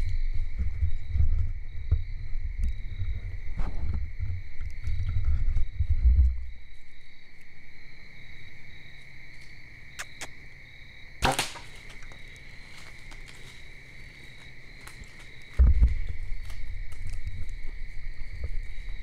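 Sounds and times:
insects chirping: 0.0s - 19.0s
bow shot crack: 11.2s - 12.1s.

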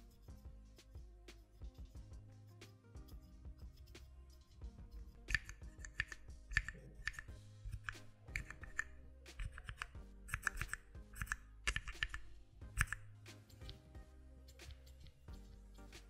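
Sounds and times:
background music: 0.0s - 16.0s
keypad keys clacking: 5.3s - 13.0s.

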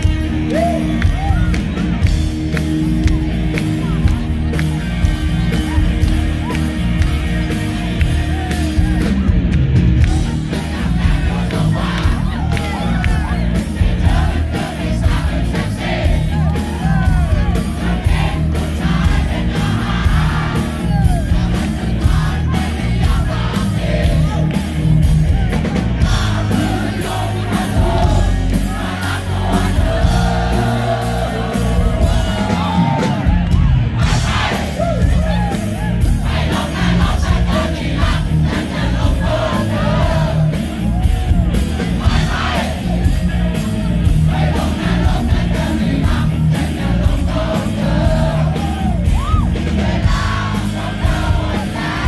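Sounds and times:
bass guitar: 0.0s - 52.0s
drums beating: 0.0s - 52.0s
crowd shouting: 10.0s - 52.0s.

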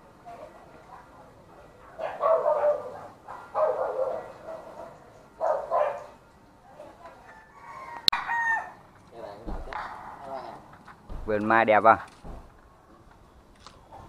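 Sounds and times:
dog barking: 2.0s - 6.2s.

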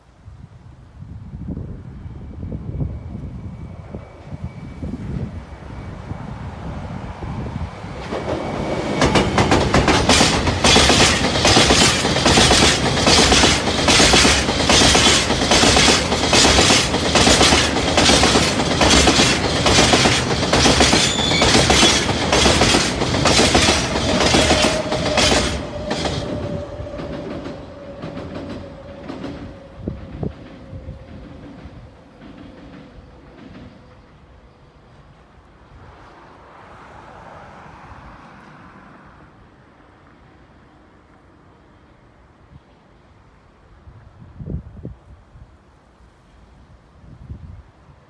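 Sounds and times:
train wheels clacking: 7.9s - 34.3s.

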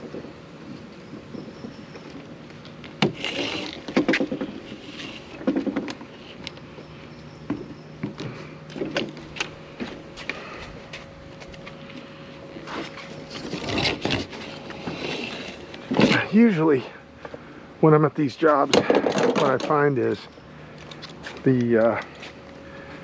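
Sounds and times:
faint steady hum: 0.0s - 23.0s
spline roller scraping and clicking: 3.0s - 6.4s, 12.6s - 16.2s.

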